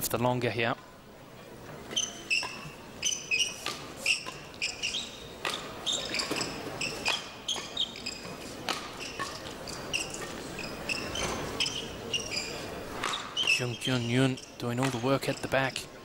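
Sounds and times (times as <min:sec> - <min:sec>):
shoes squeaking on court: 0:01.6 - 0:15.9
racket hitting shuttlecock: 0:01.9 - 0:11.8, 0:12.9 - 0:13.6.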